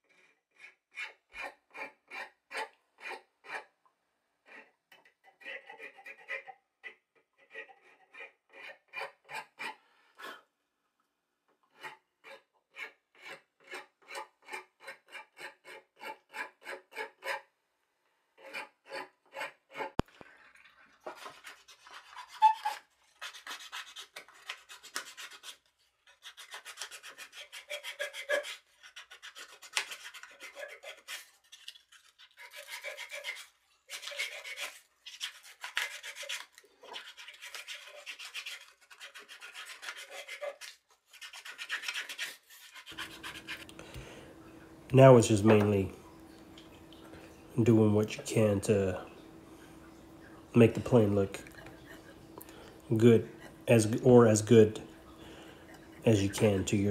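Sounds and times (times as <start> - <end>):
file rasping on wood: 0.0 - 3.7, 4.4 - 10.4, 11.7 - 17.5, 18.4 - 20.0, 21.0 - 43.7.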